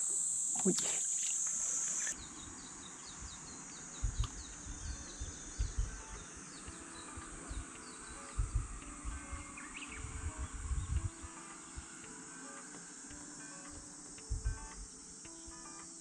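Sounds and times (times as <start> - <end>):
high insect buzz: 0.0 - 16.0
low thumps: 4.0 - 6.2, 8.3 - 9.4, 10.0 - 11.9, 14.2 - 14.9.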